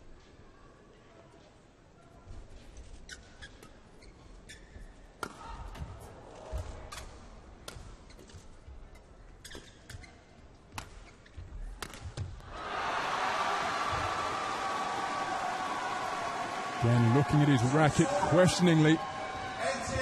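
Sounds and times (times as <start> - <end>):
shoes squeaking on court: 2.7 - 5.1, 6.8 - 12.3
crowd noise: 12.5 - 20.0.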